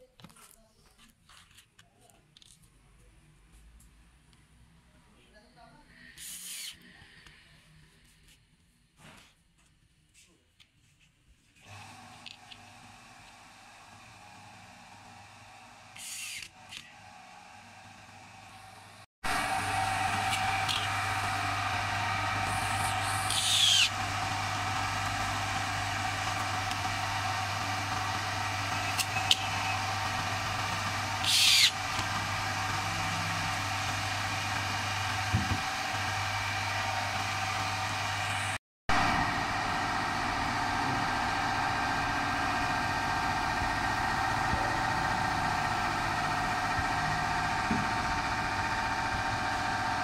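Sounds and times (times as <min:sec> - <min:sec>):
mechanical hum: 0:10.9 - 0:50.0.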